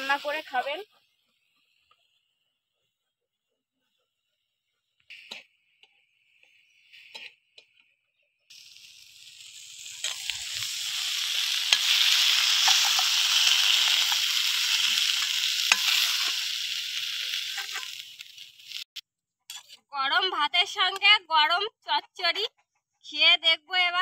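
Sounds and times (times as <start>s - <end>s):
food sizzling in a metal pan: 0.0s - 2.2s, 8.5s - 20.3s
metal spatula scraping a pan: 9.6s - 18.1s, 19.5s - 19.9s.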